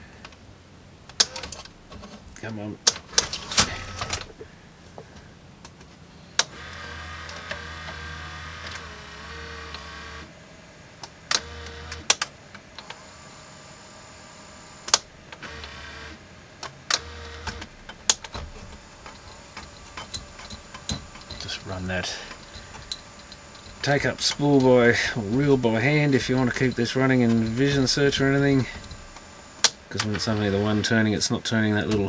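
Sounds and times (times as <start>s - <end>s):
tape mechanism clicks and clunks: 1.1s - 10.0s, 11.0s - 13.1s, 14.8s - 32.0s
small motor whirring: 6.4s - 10.3s, 12.8s - 16.2s, 16.9s - 31.0s.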